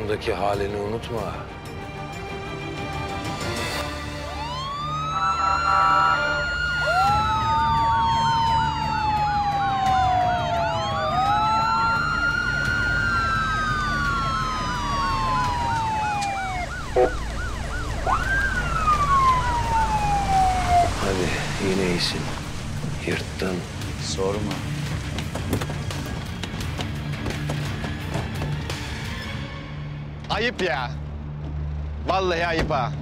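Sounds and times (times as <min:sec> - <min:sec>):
police sirens wailing: 0:03.9 - 0:22.8
warbling siren yelp: 0:04.2 - 0:21.4.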